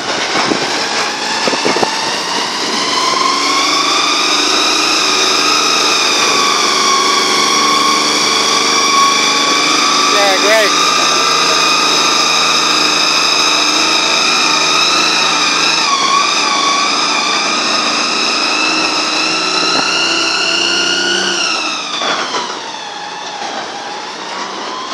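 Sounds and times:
dump truck engine: 0.0s - 24.9s
high-pitched whine: 0.0s - 24.9s.

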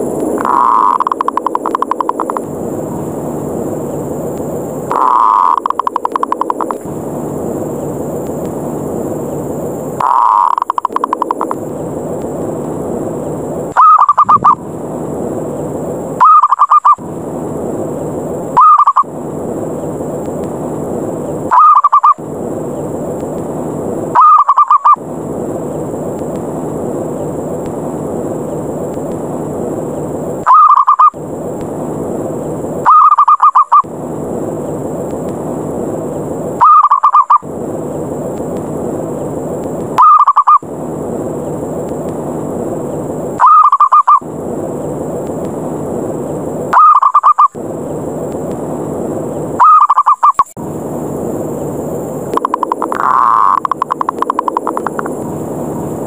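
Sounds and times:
steady rushing noise: 0.0s - 32.9s, 33.7s - 56.0s
dove cooing trills: 0.4s - 2.1s, 4.9s - 6.5s, 10.0s - 11.3s, 13.8s - 14.6s, 16.2s - 17.0s, 18.6s - 19.1s, 21.5s - 22.2s, 24.2s - 25.0s, 30.5s - 31.1s, 32.8s - 33.8s, 36.6s - 37.4s, 40.0s - 40.6s, 43.4s - 44.2s, 46.7s - 47.6s, 49.6s - 50.5s.

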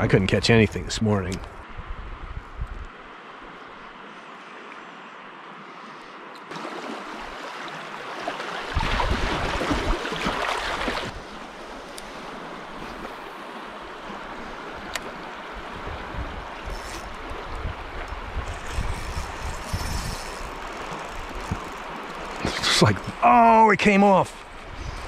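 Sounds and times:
rushing river water: 6.4s - 25.0s.

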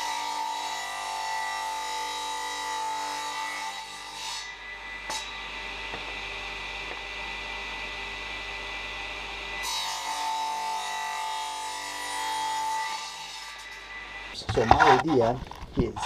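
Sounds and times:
electric hum with high whine: 4.5s - 9.8s.

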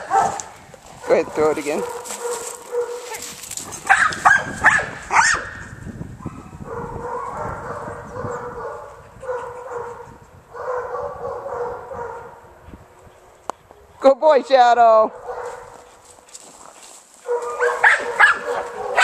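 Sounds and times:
dog barking excitedly: 0.0s - 3.2s, 3.8s - 5.6s, 6.3s - 12.4s, 15.1s - 15.8s, 17.2s - 19.0s.

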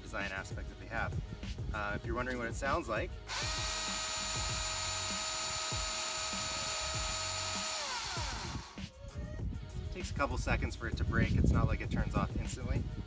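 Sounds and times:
electric chainsaw whining: 3.3s - 8.8s.

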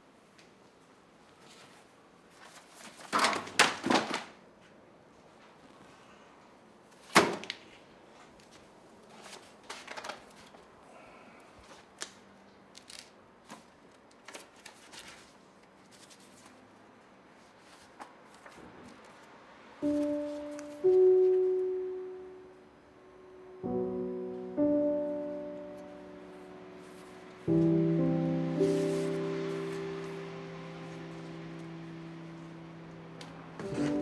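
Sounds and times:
books and boxes rustling knocks: 33.6s - 34.0s.

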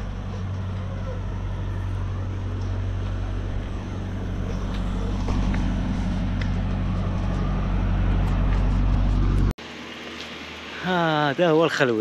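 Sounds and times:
motor humming: 0.0s - 9.5s.

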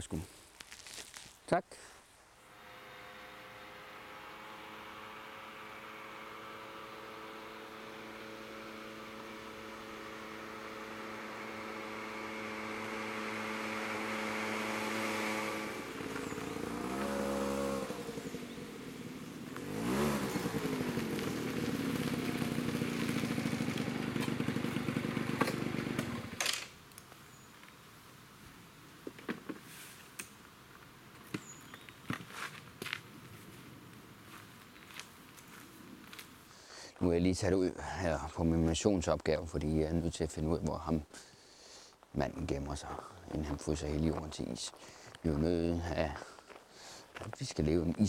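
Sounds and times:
moped scooter engine: 2.4s - 26.7s.

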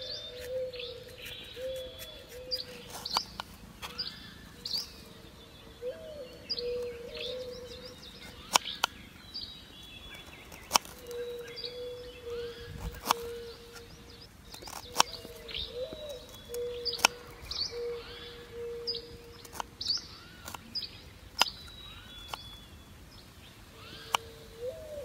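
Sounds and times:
low whistling bird call: 0.0s - 9.0s, 10.1s - 20.6s
birds chirping: 0.0s - 25.0s.

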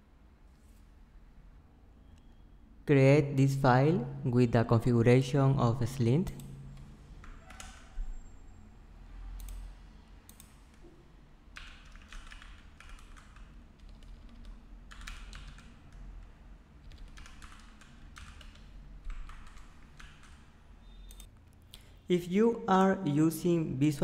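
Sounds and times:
keyboard typing clicks: 6.3s - 7.9s, 9.4s - 9.7s, 10.3s - 10.6s, 11.6s - 16.0s, 16.8s - 21.6s.

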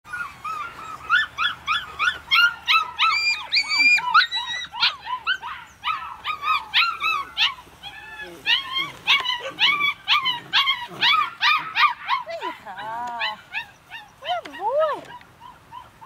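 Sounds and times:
puppy whining: 0.1s - 16.0s
puppy yipping: 0.1s - 16.0s.

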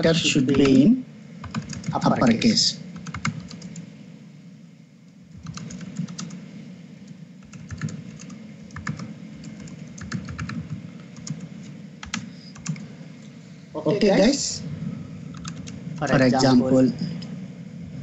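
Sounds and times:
computer keyboard typing: 1.4s - 2.0s, 3.0s - 3.8s, 5.4s - 6.4s, 7.4s - 12.9s, 15.3s - 16.1s.

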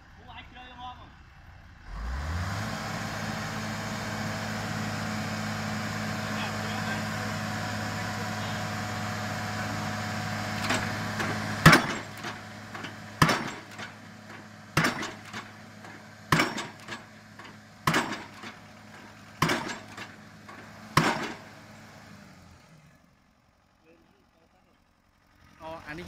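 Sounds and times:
rig engine humming: 0.0s - 26.0s
metal clank: 10.6s - 21.5s
pile-driving hammer blows: 10.6s - 21.6s.

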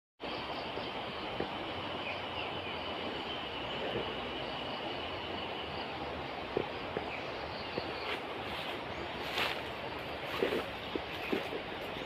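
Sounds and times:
even outdoor hiss: 0.2s - 12.0s.

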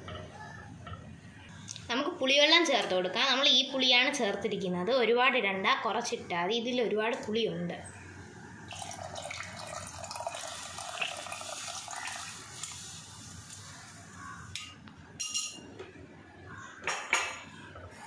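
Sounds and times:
liquid pouring and splashing into pan: 8.7s - 13.6s
utensils clinking against bowl and pan: 14.6s - 15.7s.

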